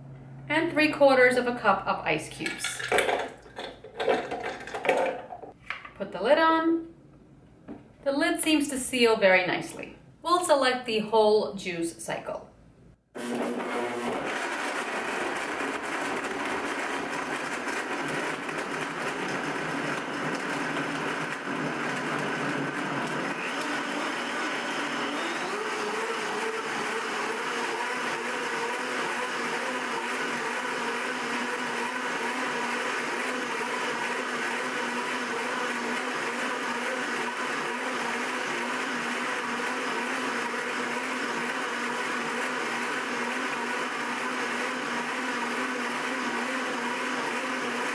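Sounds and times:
blender motor running: 13.1s - 47.9s.

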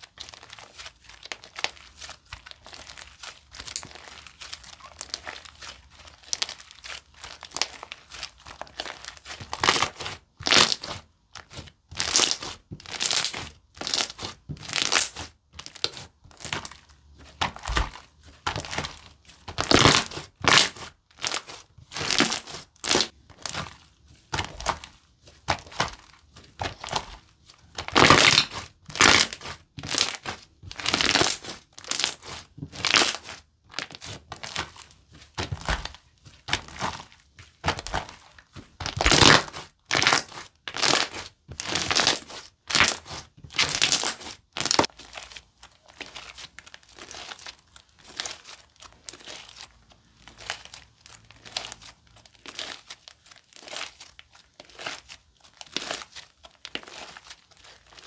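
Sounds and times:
slime squished by hand: 0.0s - 58.0s.

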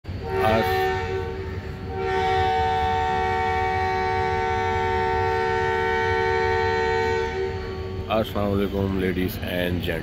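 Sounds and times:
train horn chord: 0.1s - 8.5s.

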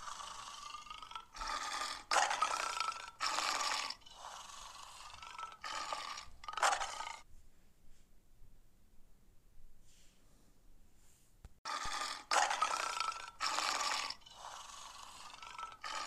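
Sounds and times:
lion grunting roars: 0.0s - 7.2s, 11.7s - 16.0s.

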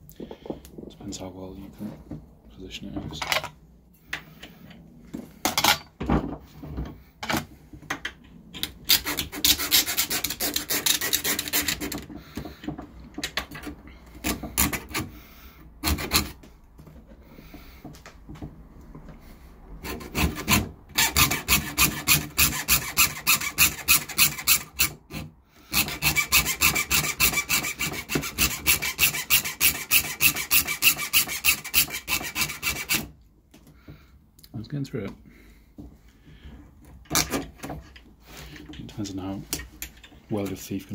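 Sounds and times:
hacksaw rasping through metal: 8.8s - 12.8s, 13.5s - 15.1s, 15.8s - 16.4s, 19.8s - 33.1s.

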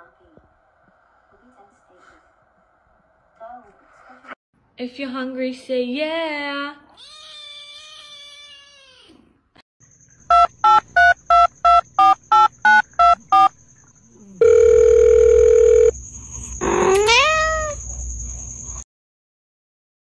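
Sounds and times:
steady telephone tone: 10.3s - 13.5s, 14.4s - 16.0s
telephone keypad beeps: 10.3s - 13.5s, 14.4s - 15.9s.

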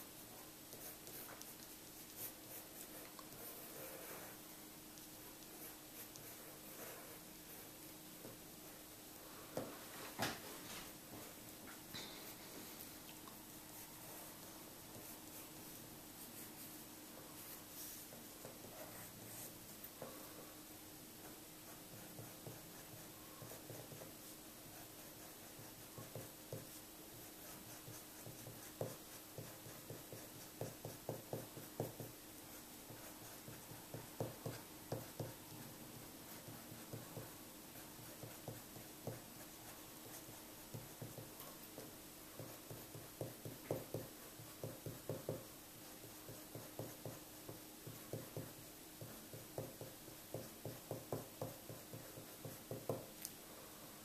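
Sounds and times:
faint steady hum: 0.0s - 54.0s
pencil scratching on paper: 0.2s - 4.5s, 5.3s - 8.8s, 17.4s - 20.0s, 21.2s - 53.1s.

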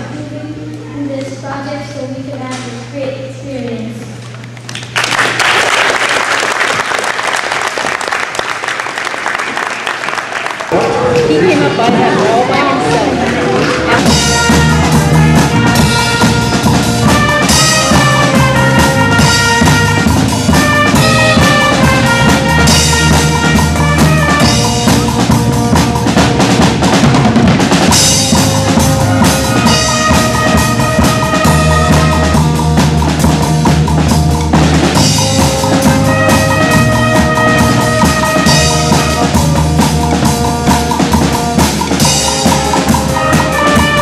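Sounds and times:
saxophones and brass playing: 10.7s - 44.0s
drum kit beat: 13.1s - 44.0s.

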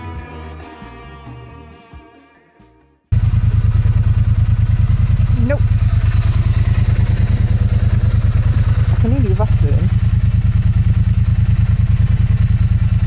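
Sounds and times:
motorcycle engine idling: 3.1s - 13.0s.

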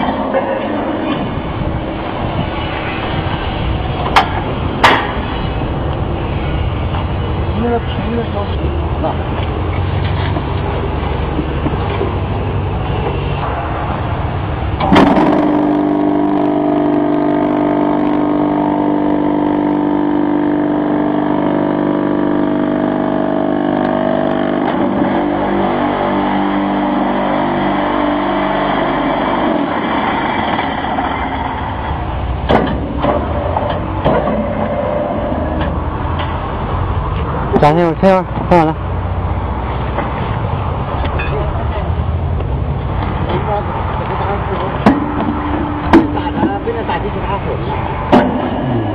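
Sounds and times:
steady humming tone: 0.0s - 37.1s, 44.0s - 48.9s
machine mechanical rumble: 0.0s - 37.5s
metal knocks: 32.4s - 36.4s, 44.8s - 47.0s, 48.1s - 48.8s.

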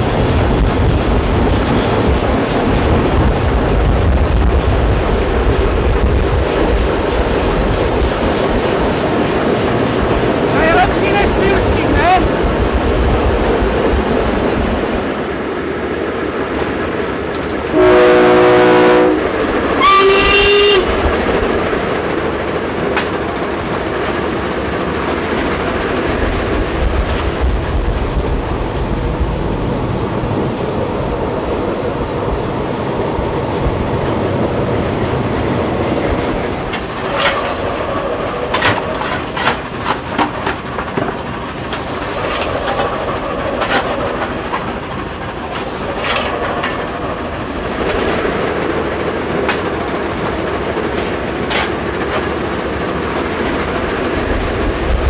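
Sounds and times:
steam locomotive running and rail noise: 0.0s - 55.0s
train horn blasts: 17.7s - 21.0s.

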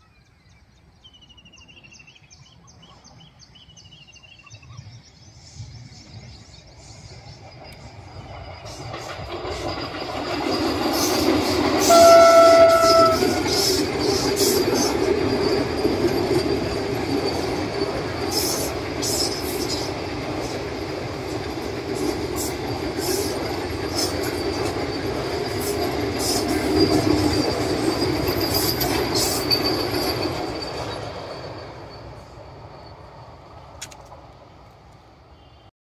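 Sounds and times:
train wheels rushing on rails: 4.8s - 35.7s
train horn: 11.6s - 13.8s.

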